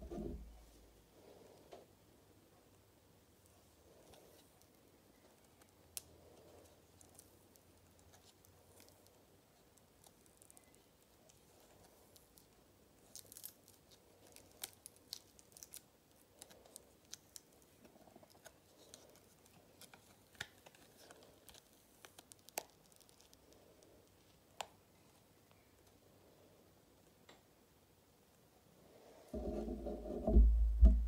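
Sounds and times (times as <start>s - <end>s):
mold crackling and clicking: 4.0s - 23.9s.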